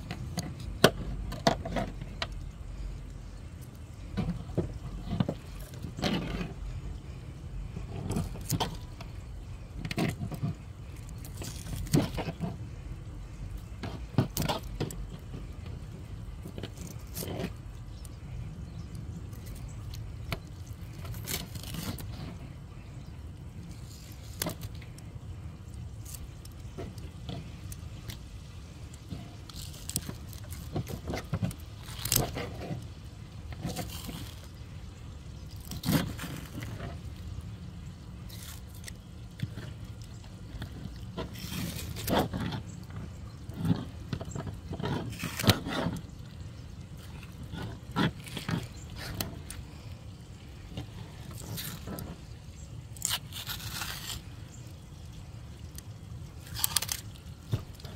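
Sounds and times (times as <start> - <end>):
fish skin tearing: 19.3 - 22.1, 28.9 - 32.9, 35.4 - 36.8, 38.2 - 42.5, 45.1 - 46.3, 51.2 - 54.9, 55.7 - 57.9.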